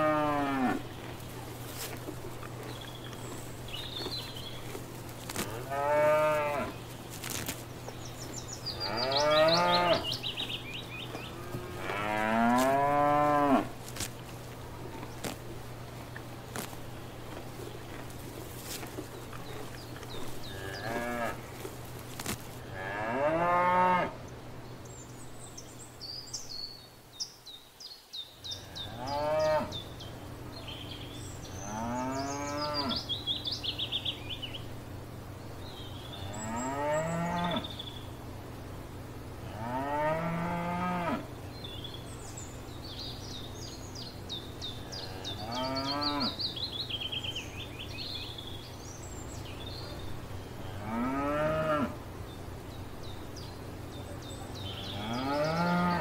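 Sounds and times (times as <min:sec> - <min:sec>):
cow mooing: 0:00.0 - 0:00.9, 0:05.5 - 0:06.8, 0:08.8 - 0:10.2, 0:11.2 - 0:13.8, 0:20.4 - 0:21.4, 0:50.8 - 0:52.0, 0:54.8 - 0:56.0
songbirds trilling: 0:00.0 - 0:56.0.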